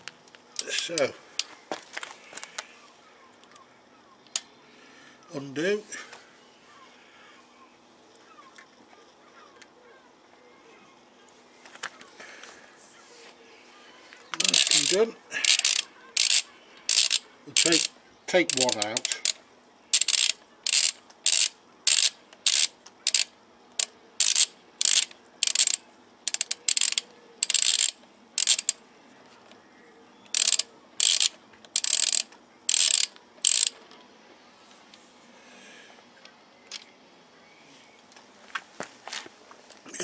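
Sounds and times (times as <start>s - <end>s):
torque wrench ratchet clicking: 14.4s - 28.8s, 30.3s - 33.8s.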